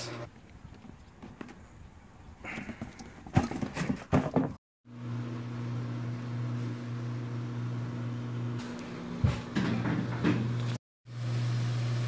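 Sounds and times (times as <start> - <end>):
appliance motor hum: 4.9 - 12.0.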